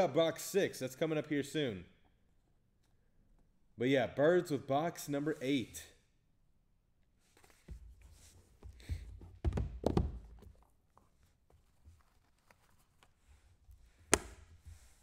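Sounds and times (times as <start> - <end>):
boxes knocking on table: 8.9 - 10.5.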